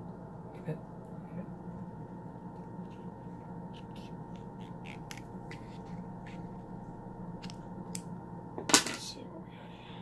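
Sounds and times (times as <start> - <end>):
steady low hum: 0.0 - 10.0
small scissors snipping eggshell: 3.8 - 6.4.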